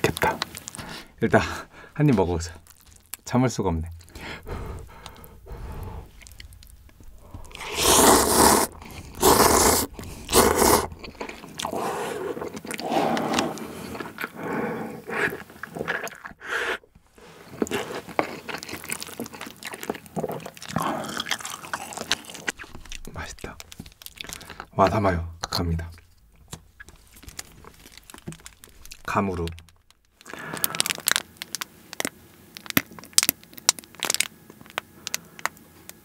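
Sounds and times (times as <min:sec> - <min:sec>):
wet chewing with smacks: 0:01.9 - 0:03.3, 0:04.0 - 0:24.8, 0:25.4 - 0:36.0
slurping noodles: 0:04.1 - 0:22.8.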